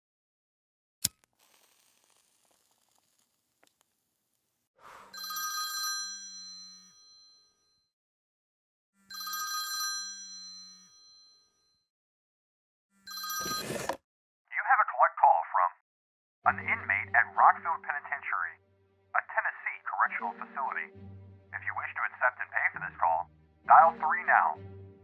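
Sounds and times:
telephone ringing: 9.1 - 11.1, 13.1 - 14.0.

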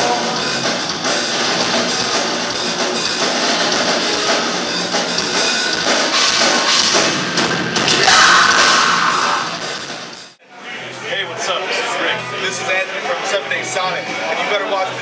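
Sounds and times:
bass guitar: 0.0 - 10.4
drum kit fast beat: 0.0 - 10.4.

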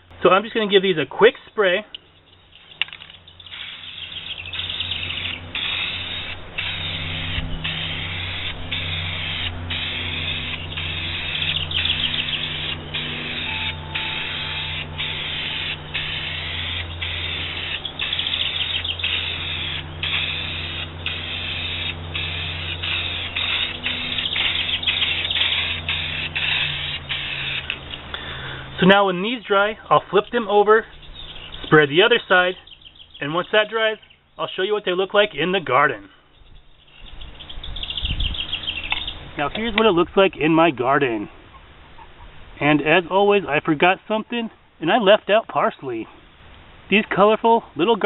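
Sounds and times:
low steady hum: 0.0 - 34.5
aerosol spray can hissing: 3.4 - 27.9.

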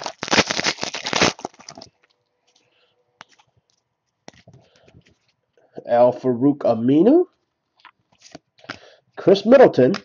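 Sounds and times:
plastic wrapper tearing and crumpling: 0.0 - 2.1.

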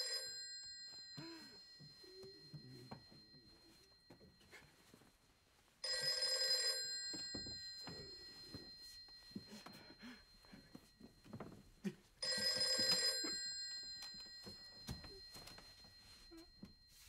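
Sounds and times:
bell ringing: 5.8 - 17.0.

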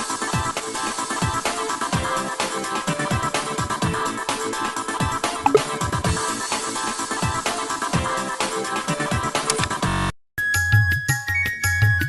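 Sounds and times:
rising blip of tones: 5.5 - 5.7.

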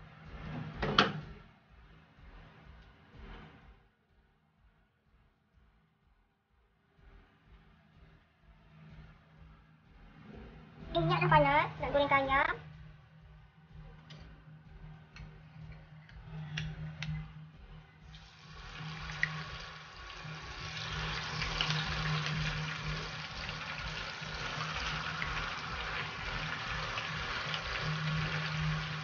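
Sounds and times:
chicken sizzling in hot oil: 18.1 - 29.0.

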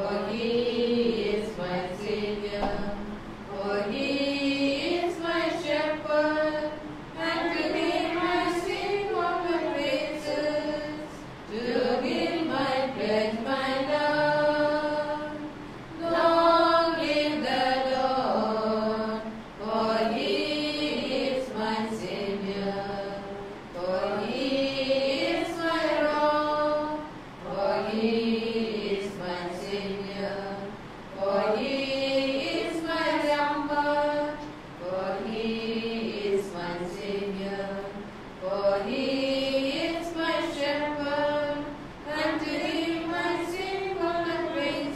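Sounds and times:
hymn singing: 0.0 - 44.9.

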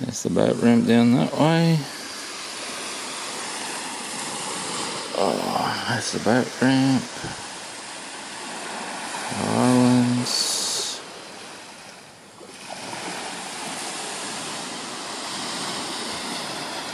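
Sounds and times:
person's voice: 0.0 - 2.1, 5.1 - 7.4, 9.3 - 11.0
waves lapping on sandy beach: 0.0 - 16.9.

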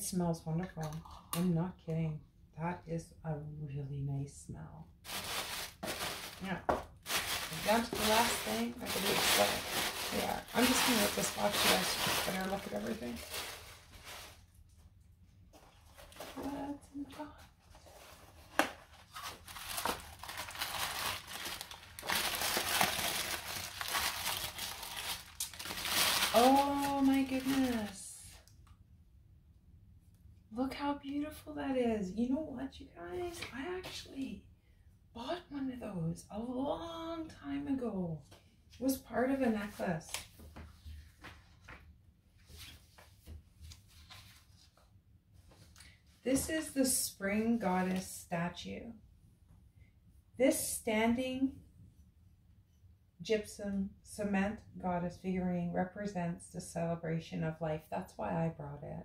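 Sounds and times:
low steady hum: 0.0 - 59.0
tissue paper crinkling: 5.0 - 14.6, 17.6 - 28.0, 42.4 - 44.9
faint rustles and soft clicks: 40.0 - 46.6.

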